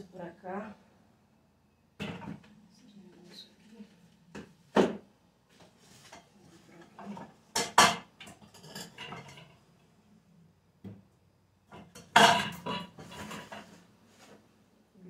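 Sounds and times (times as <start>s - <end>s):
kitchen items knocking and clattering: 2.0s - 2.5s, 4.4s - 5.1s, 6.0s - 9.7s, 11.7s - 13.9s.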